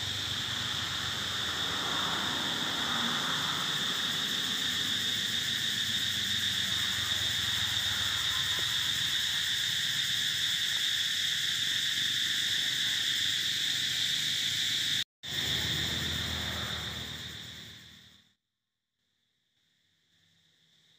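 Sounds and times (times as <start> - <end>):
insect chorus drone: 0.0 - 18.4, 19.5 - 20.9.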